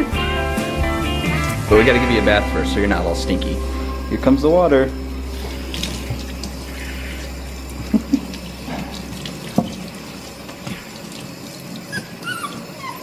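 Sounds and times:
sprayer water splashing in sink: 5.3 - 7.2, 7.8 - 12.8.

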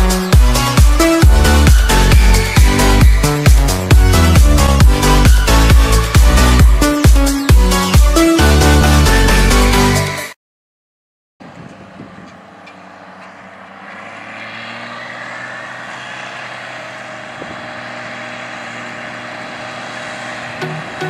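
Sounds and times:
tractor diesel engine running: 0.0 - 9.8, 11.4 - 21.0
music: 0.0 - 10.4, 20.5 - 21.0.

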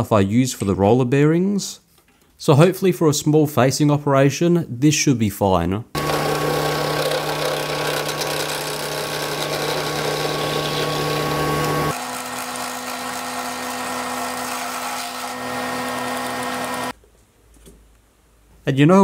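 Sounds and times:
metal lathe whine: 6.0 - 16.9.

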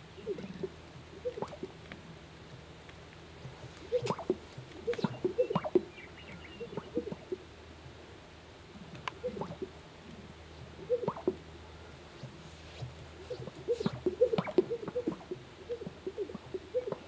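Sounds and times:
sage-grouse low liquid popping: 0.2 - 7.9, 8.8 - 11.5.

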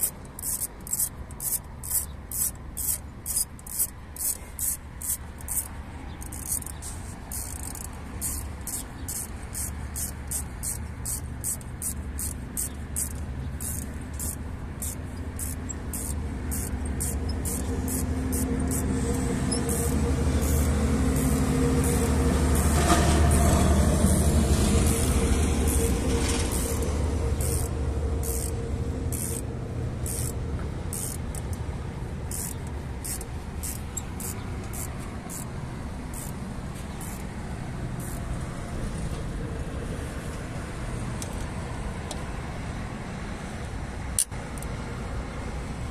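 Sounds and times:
sharp high-pitched ticks: 0.0 - 37.4, 38.0 - 38.3
diesel truck engine running: 6.2 - 41.1.

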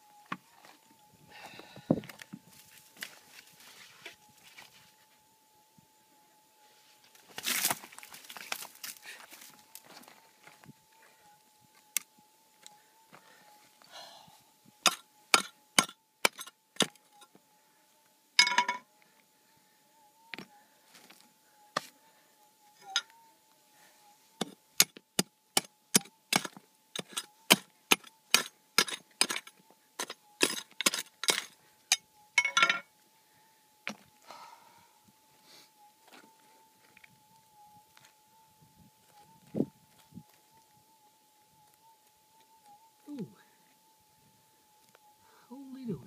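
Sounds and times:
metal detector hum: 18.3 - 19.2, 20.0 - 23.6, 27.0 - 33.0
rocks clinking and knocking: 26.0 - 32.9.

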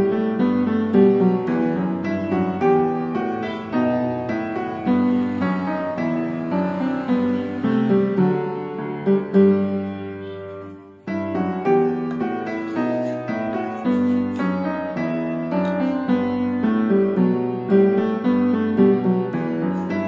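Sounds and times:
slow piano melody: 0.0 - 20.0.

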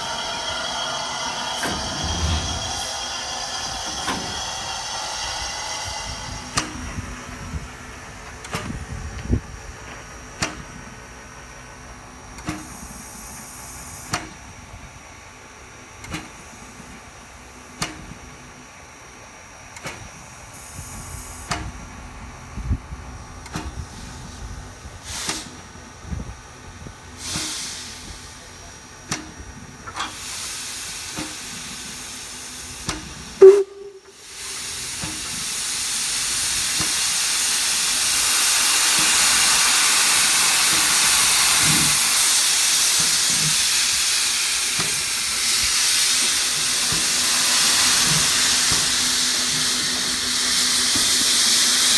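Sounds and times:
steam locomotive knocking: 0.0 - 7.7, 29.0 - 51.9
steam hissing: 0.0 - 7.8, 23.8 - 25.7, 26.8 - 51.9.

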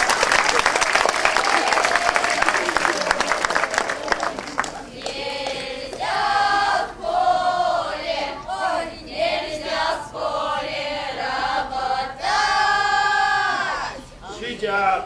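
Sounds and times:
women singing together: 4.0 - 14.6.

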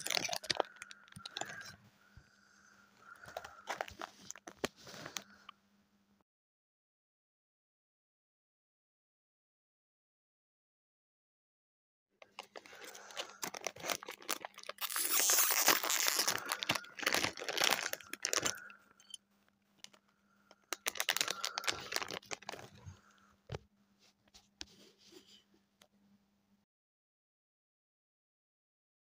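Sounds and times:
foil bag crinkling and tearing: 0.0 - 1.7, 3.1 - 5.3, 12.2 - 18.7, 19.9 - 23.0.

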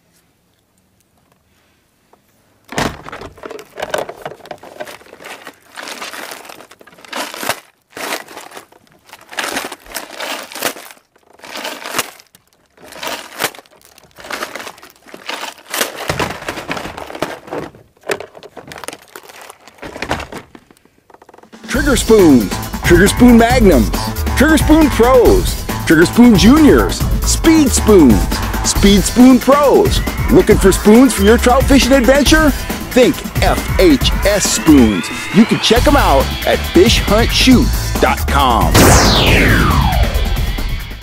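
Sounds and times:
plastic crinkling and rustling: 2.6 - 21.6.

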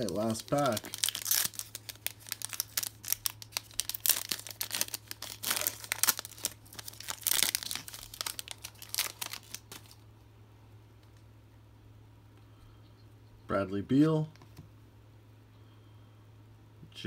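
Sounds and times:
foil wrapper tearing and crinkling: 0.0 - 10.0.

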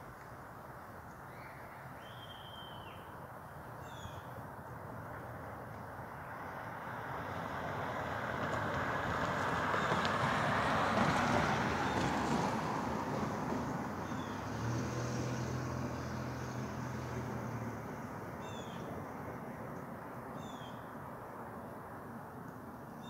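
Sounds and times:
passing vehicle rushing: 6.3 - 19.6.

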